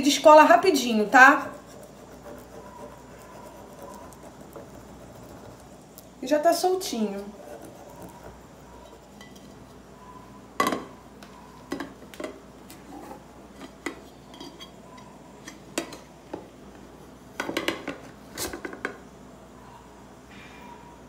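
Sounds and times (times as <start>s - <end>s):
pan and plate knocking and clinking: 10.6s - 10.9s.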